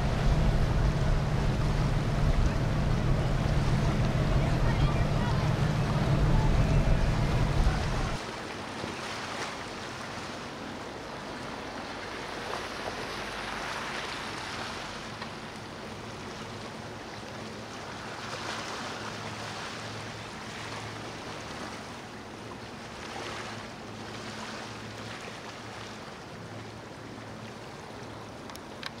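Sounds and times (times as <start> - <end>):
boat engine throbbing: 0.0 - 8.2
low engine rumble: 0.0 - 8.2
water washing: 0.0 - 8.2
wind: 0.0 - 29.0.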